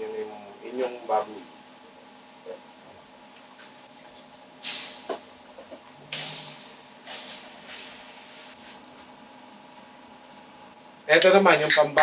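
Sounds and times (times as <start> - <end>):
meat sizzling in boiling sauce: 3.9 - 8.8.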